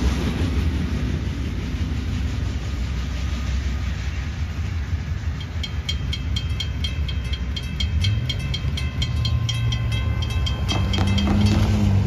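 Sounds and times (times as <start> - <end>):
railroad crossing bell ringing: 4.6 - 12.0
cars driving over crossing: 5.9 - 12.0.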